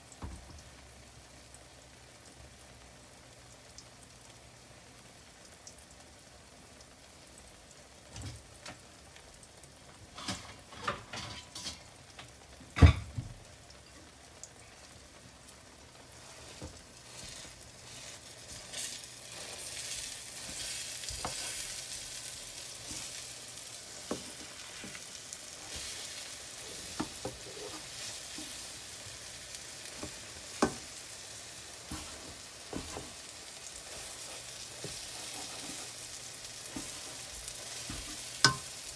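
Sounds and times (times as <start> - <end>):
egg sizzling in a frying pan: 0.0 - 38.9
utensils scraping a pan: 16.3 - 22.0, 23.9 - 28.7, 33.8 - 38.8.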